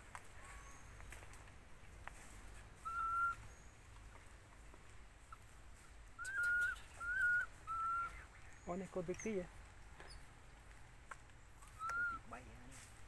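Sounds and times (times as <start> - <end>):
whistled animal calls: 2.8 - 3.7, 6.2 - 8.3, 11.6 - 12.4.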